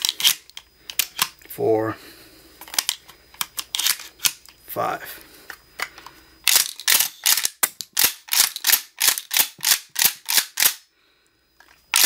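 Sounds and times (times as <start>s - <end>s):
shells dropping: 2.6s - 4.6s, 6.4s - 10.8s
shotgun pump action clacks: 6.5s - 10.8s.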